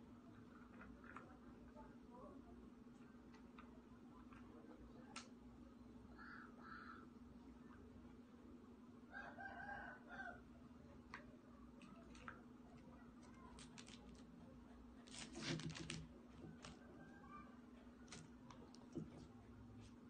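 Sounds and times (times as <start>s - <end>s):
faint pitched animal call: 6.1s - 7.1s.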